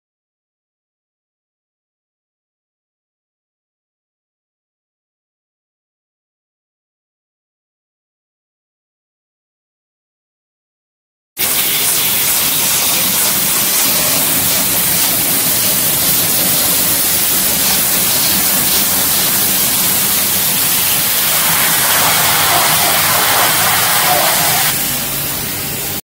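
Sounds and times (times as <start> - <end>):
machines hissing: 11.4 - 25.6.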